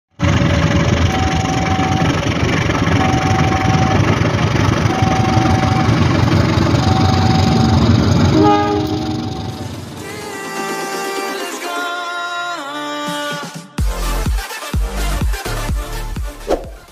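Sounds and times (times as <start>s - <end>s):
wheels on rails: 0.1s - 10.2s
diesel locomotive engine rumble: 0.1s - 10.9s
high tone: 0.7s - 10.3s
cluster of tones: 1.1s - 10.0s.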